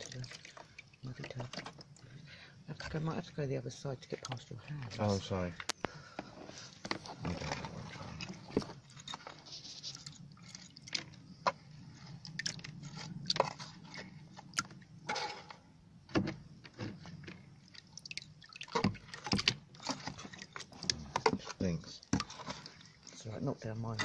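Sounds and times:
mud squelching and dripping: 0.0 - 2.2, 6.6 - 15.1, 16.9 - 24.0
mud being scraped: 6.4 - 15.6, 18.8 - 24.0.

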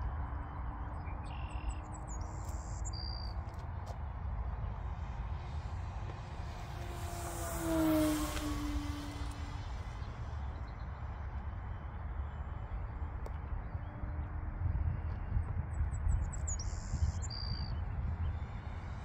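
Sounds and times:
bird chirps: 1.0 - 3.4, 16.1 - 17.9
model plane electric motor hum: 5.1 - 10.5.

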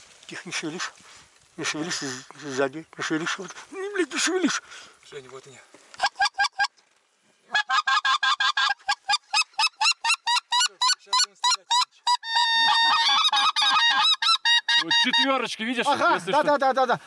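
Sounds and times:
goose call honks: 7.5 - 15.5.

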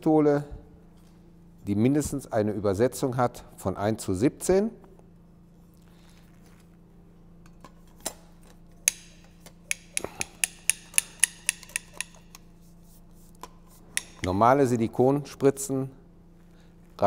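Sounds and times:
ratchet mechanism clicking: 8.9 - 12.4.

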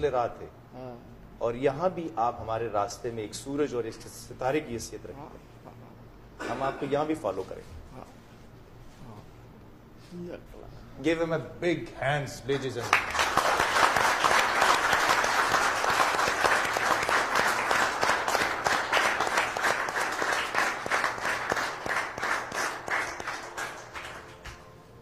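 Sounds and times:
audience applauding: 12.5 - 24.7.

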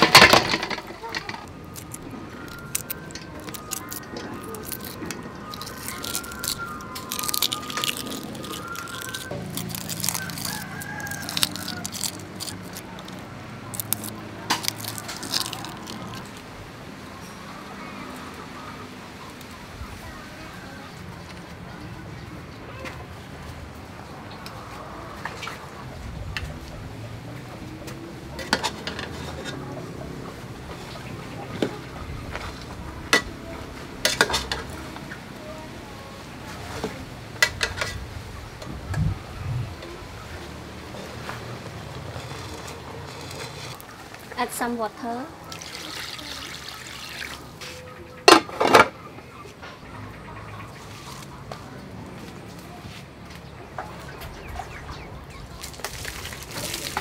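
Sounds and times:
eggshell cracking and peeling: 1.3 - 16.4
rooster crowing: 2.5 - 14.0.

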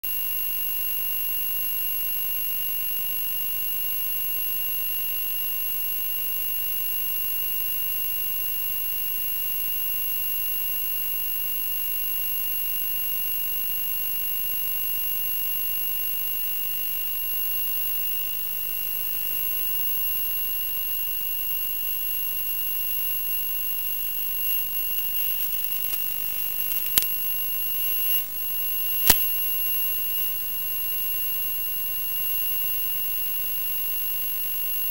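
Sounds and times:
steady electronic hiss: 24.5 - 29.5
sharp clicks: 24.6 - 27.3, 29.0 - 29.5.

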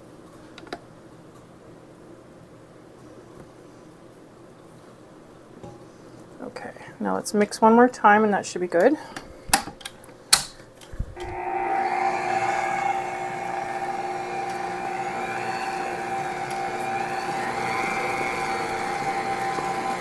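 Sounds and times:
beater mixing batter in steel bowl: 11.2 - 20.0
electric stand mixer running: 11.2 - 20.0.

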